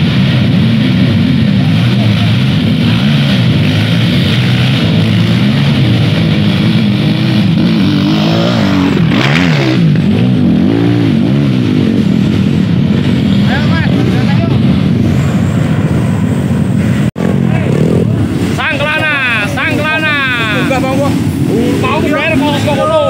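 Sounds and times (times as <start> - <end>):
dirt bike engines revving: 0.0 - 23.0.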